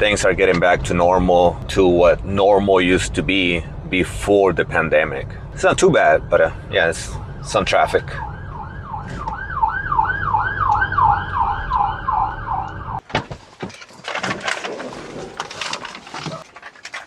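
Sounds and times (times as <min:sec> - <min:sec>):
traffic rumble: 0:00.0 - 0:17.0
siren yelping: 0:05.6 - 0:13.0
clicks and rustling: 0:13.0 - 0:17.0.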